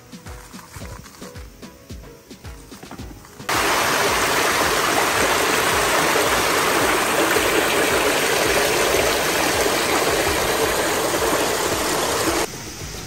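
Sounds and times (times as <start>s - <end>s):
stream rushing over rocks: 3.5s - 12.5s.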